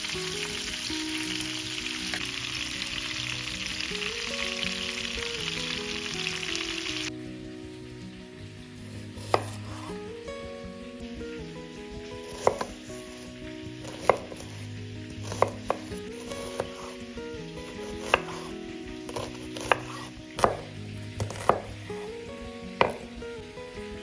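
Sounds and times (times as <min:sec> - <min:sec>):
knife chopping on cutting board: 0:09.2 - 0:09.9, 0:12.3 - 0:12.7, 0:13.8 - 0:14.4, 0:15.2 - 0:15.9, 0:17.8 - 0:18.5, 0:19.1 - 0:21.7, 0:22.8 - 0:23.1.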